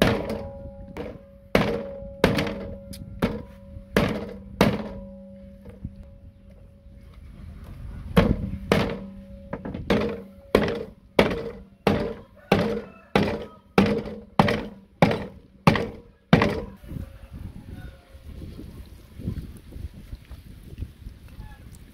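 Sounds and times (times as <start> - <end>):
wooden club thudding on board: 0.0 - 5.1, 8.2 - 16.8.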